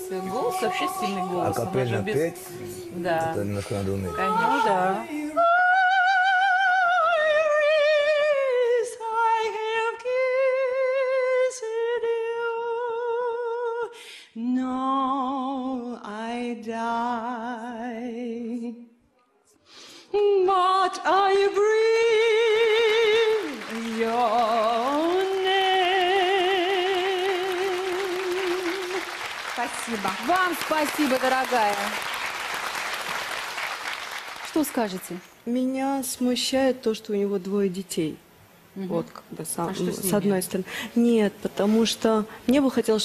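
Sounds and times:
woman opera singing: 0.0 - 3.4, 4.1 - 19.0, 20.1 - 29.2.

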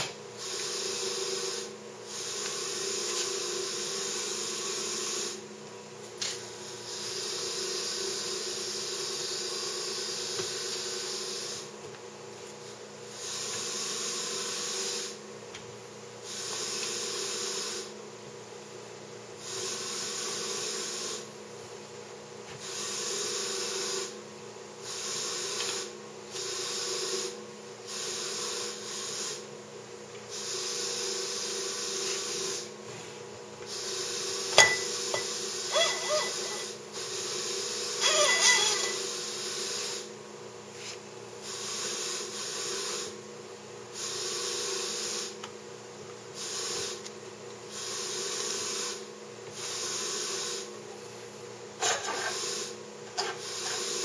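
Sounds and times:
hiss: 0.4 - 5.4, 6.6 - 11.7, 13.1 - 15.2, 16.2 - 17.9, 19.4 - 21.3, 22.6 - 24.2, 24.8 - 29.5, 30.3 - 32.8, 33.7 - 40.2, 40.8 - 43.2, 43.9 - 45.4, 46.4 - 47.0, 47.7 - 50.8, 51.8 - 54.0
scrape with ringing metal: 34.6 - 36.7, 38.0 - 39.1.

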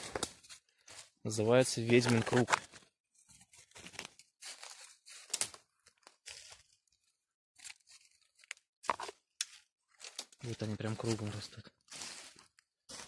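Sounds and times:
dry leaves rustling and crunching: 3.8 - 6.6, 11.9 - 13.0.

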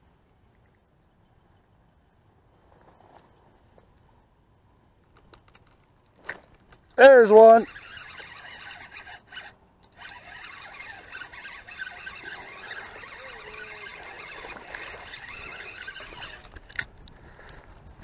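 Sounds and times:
fishing reel gears whirring: 7.2 - 16.9.

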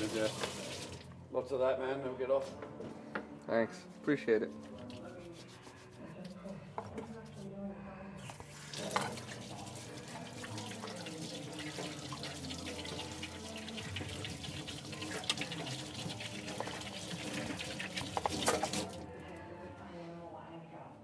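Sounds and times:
tap running into metal sink: 10.5 - 19.0.

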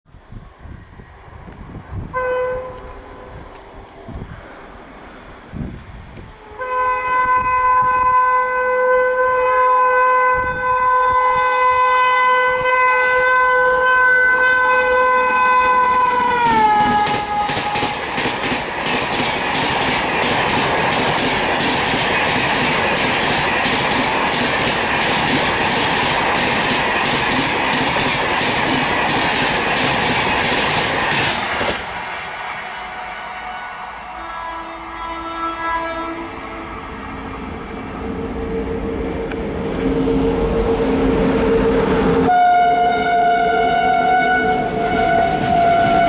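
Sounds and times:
train rushing noise: 0.1 - 9.5, 10.2 - 46.0
locomotive horn chord: 2.1 - 3.4, 6.4 - 17.9, 32.9 - 36.7, 38.2 - 46.0
train wheels clickety-clack: 15.4 - 32.1.

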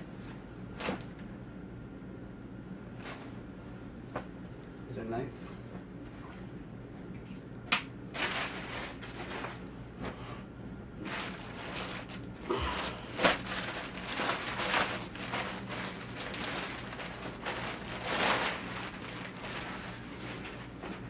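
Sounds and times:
plastic bag crinkling: 8.1 - 9.6, 11.0 - 21.0.

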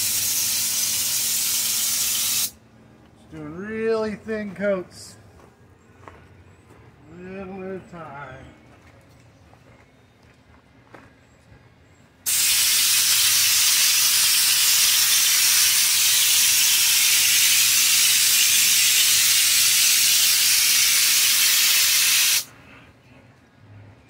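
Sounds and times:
spray gun hissing: 0.0 - 2.5, 12.3 - 22.5.

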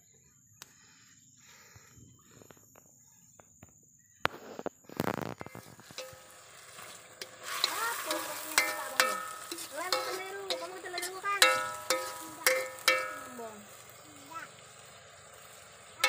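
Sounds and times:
greens sizzling in hot oil: 4.9 - 16.0
metal spoon knocking on a pan: 6.0 - 6.4, 7.2 - 13.8.

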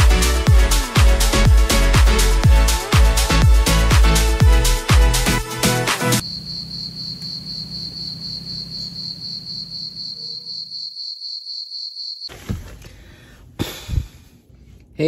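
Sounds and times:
cricket trilling: 6.2 - 12.3.

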